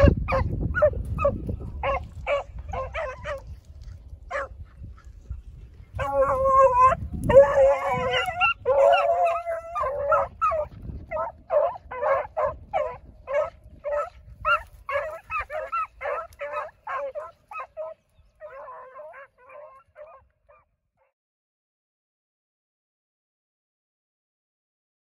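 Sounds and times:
dogs baying: 0.0 - 5.0, 5.9 - 20.7.

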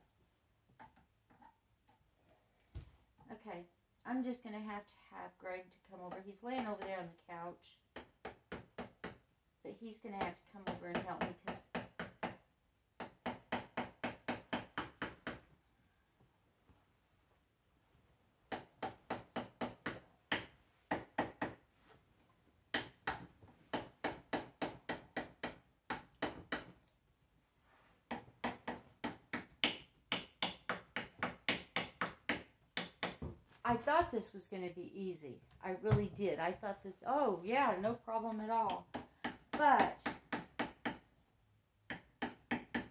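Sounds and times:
small hammer tapping tacks: 10.2 - 12.4, 22.7 - 26.9, 28.1 - 33.3, 38.7 - 41.0, 41.9 - 42.9.

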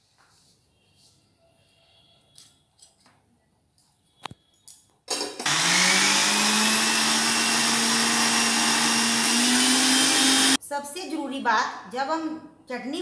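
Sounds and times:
mixer grinder motor grinding: 5.4 - 10.6.

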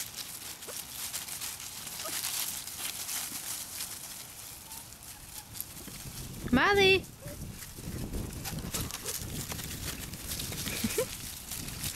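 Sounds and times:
rustles and clicks: 0.0 - 11.9
fur rubbing on microphone: 4.6 - 11.9.

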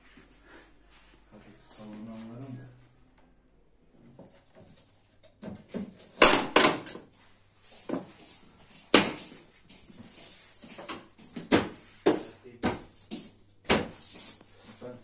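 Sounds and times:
knocks of laminate flooring work: 4.2 - 7.1, 7.8 - 9.9, 10.6 - 14.4.

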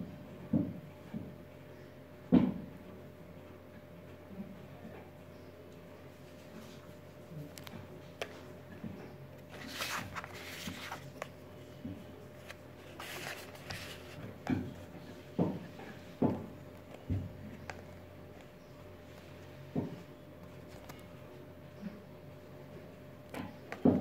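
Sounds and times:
cardboard box rustling: 9.4 - 11.4, 12.3 - 14.3.

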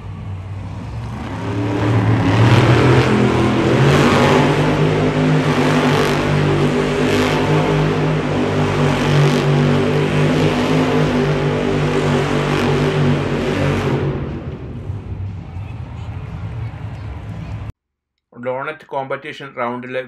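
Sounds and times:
truck engine at high revs: 0.0 - 17.7.

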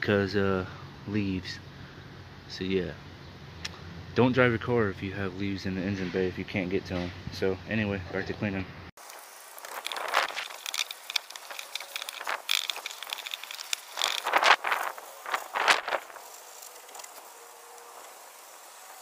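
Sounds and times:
spray bottle spritzing: 9.0 - 19.0
cloth rubbing on plastic: 9.7 - 18.4.

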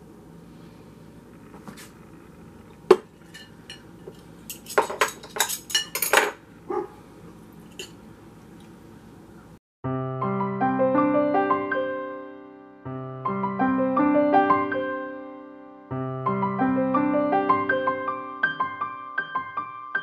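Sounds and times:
cutlery clinking on ceramic bowl: 2.9 - 6.4, 7.7 - 8.0.

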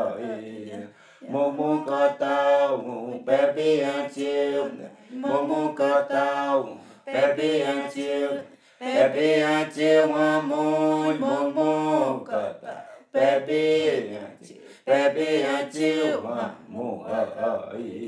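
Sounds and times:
unaccompanied chanted singing: 0.0 - 18.0.

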